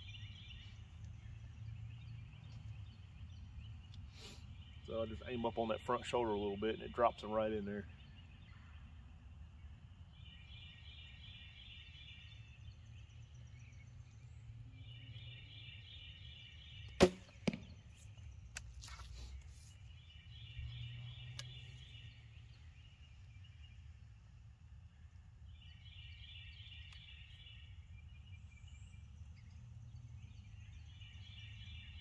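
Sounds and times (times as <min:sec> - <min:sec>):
arrow striking target: 0:16.9 - 0:17.8
bowstring snap: 0:18.5 - 0:19.2, 0:21.3 - 0:21.6.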